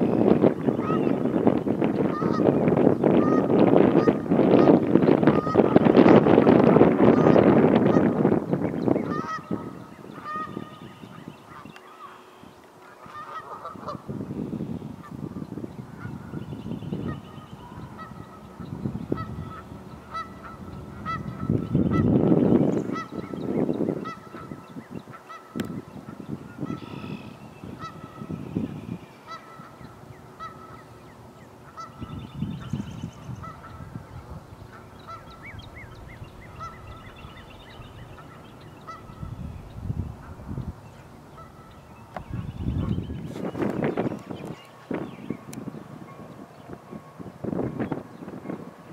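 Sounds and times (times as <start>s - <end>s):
wind buffeting microphone: 0.0s - 48.9s
geese honking: 0.1s - 14.4s, 15.0s - 45.0s
bird trilling: 15.9s - 33.9s, 34.5s - 45.5s.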